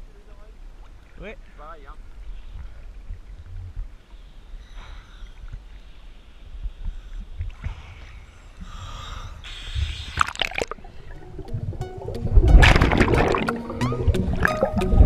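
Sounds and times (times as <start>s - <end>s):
underwater splashing and gurgling: 2.1s - 15.0s.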